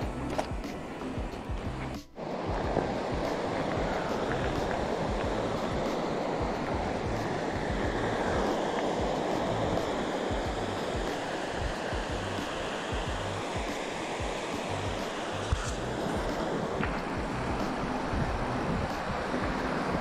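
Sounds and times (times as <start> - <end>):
wind buffeting microphone: 0.0 - 20.0
mountain bike riding rush: 1.5 - 11.0.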